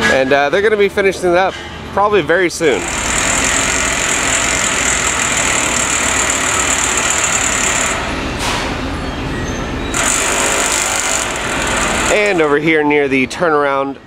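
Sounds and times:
machinery engine running: 0:10.0 - 0:12.6.

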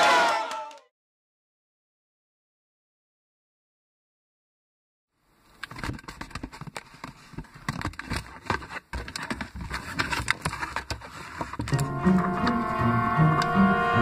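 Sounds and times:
cardboard box flaps rustling: 0:05.7 - 0:12.7.

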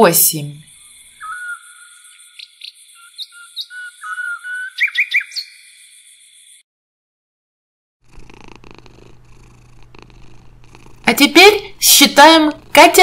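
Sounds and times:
birds chirping and whistling: 0:00.7 - 0:06.6.

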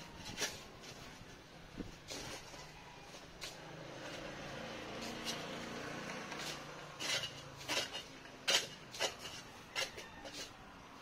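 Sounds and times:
metal tool striking soil and stones: 0:05.0 - 0:10.6.

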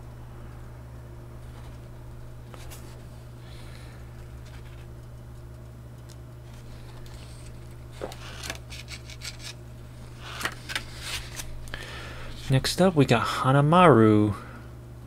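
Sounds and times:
low electrical hum: 0:00.0 - 0:15.0
page turning: 0:10.2 - 0:11.5
paper rustling and clicks: 0:10.3 - 0:11.5.

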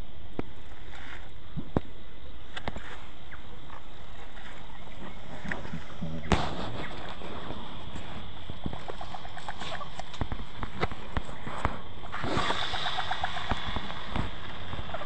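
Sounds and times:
outdoor hiss: 0:00.0 - 0:15.0.

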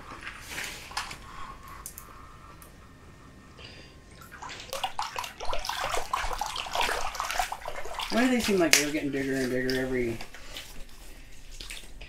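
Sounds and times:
fish splashing in water: 0:04.2 - 0:12.0.

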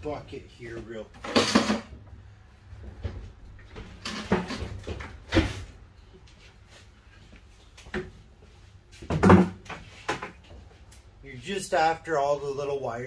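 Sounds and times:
objects knocking and clattering: 0:01.2 - 0:02.0, 0:02.8 - 0:05.6, 0:09.0 - 0:10.5.

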